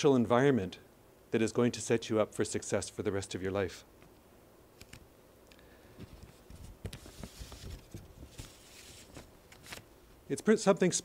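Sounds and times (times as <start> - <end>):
soft rustle: 4.8 - 10.3.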